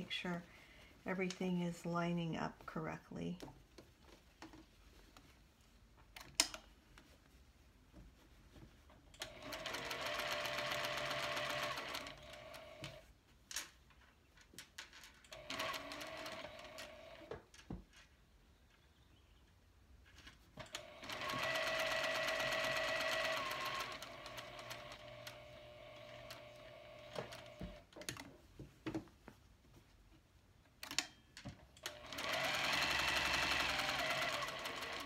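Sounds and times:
sewing machine stitching: 9.2 - 13.0, 15.3 - 17.3, 20.6 - 28.2, 31.8 - 35.0.

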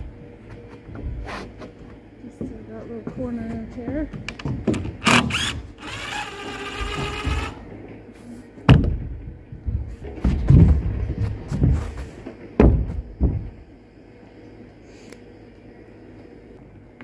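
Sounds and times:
knocks and thuds on wood: 2.4 - 5.4, 8.7 - 12.0, 12.6 - 13.6
cordless drill whining: 5.0 - 7.6.

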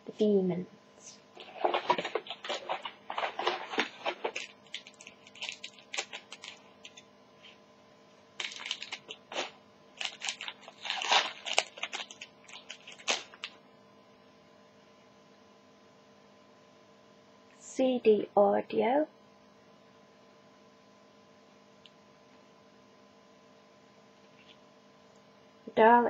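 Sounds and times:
faint steady hum: 0.0 - 26.0
foil wrapper crinkling and tearing: 1.4 - 7.0, 8.4 - 13.6
cards being handled: 1.4 - 7.6.

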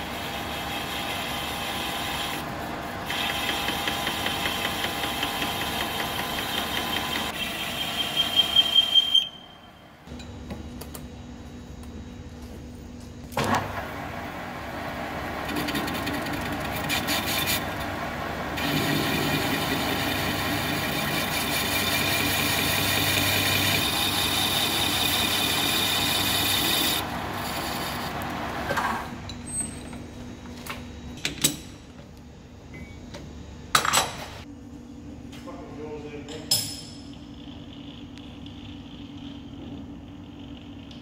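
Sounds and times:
metal lathe cutting steel: 0.0 - 9.3, 15.0 - 28.6.

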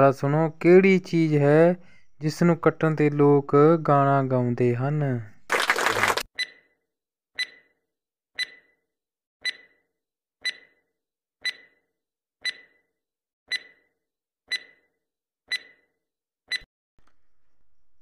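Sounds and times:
timer ticking: 6.4 - 6.6, 7.4 - 7.7, 8.4 - 8.7, 9.4 - 9.8, 10.4 - 10.8, 11.4 - 11.8, 12.4 - 12.8, 13.5 - 13.9, 14.5 - 14.9, 15.5 - 15.8.

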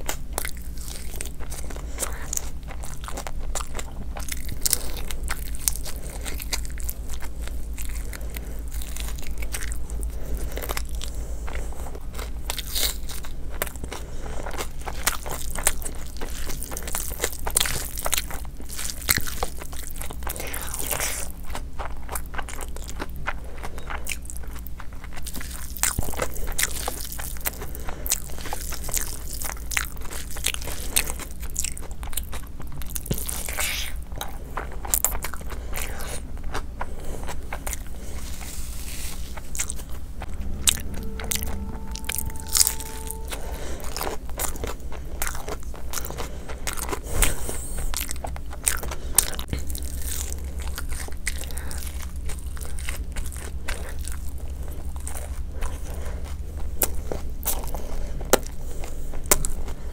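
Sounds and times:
person chewing and smacking: 0.0 - 41.8, 43.1 - 59.9
faint steady tone: 40.1 - 44.8.

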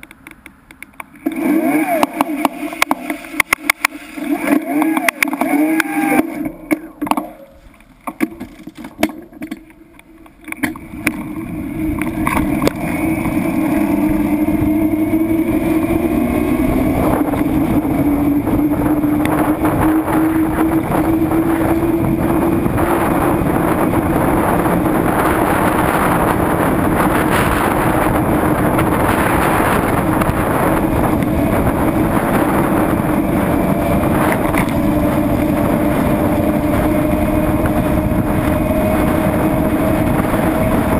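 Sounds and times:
road and wind noise: 0.0 - 40.9
vehicle engine cruising: 10.4 - 40.9.

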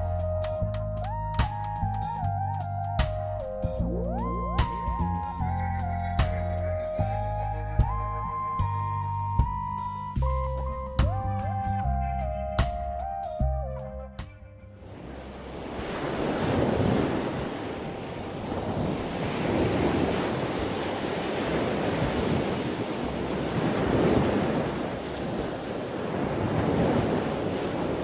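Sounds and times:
ocean waves rushing: 14.8 - 28.0.

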